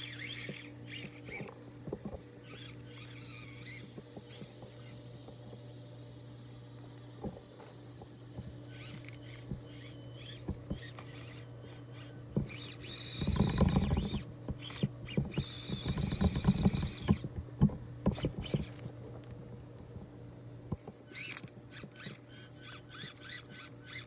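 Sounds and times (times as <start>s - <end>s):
electric motor and gears whining: 0.0s - 24.0s
tires clicking against logs: 12.0s - 20.1s.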